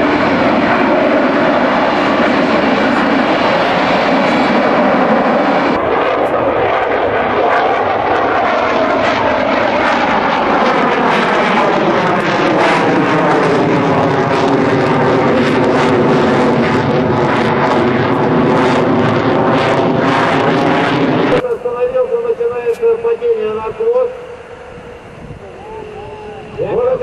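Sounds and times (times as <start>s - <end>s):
jet engines passing: 0.0s - 27.0s.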